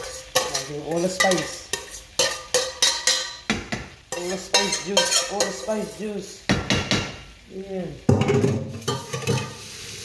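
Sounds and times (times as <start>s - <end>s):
metal utensil scraping saucepan: 0.0s - 3.4s, 4.1s - 6.0s, 8.2s - 9.8s
chicken wings sizzling in oil: 0.0s - 10.0s.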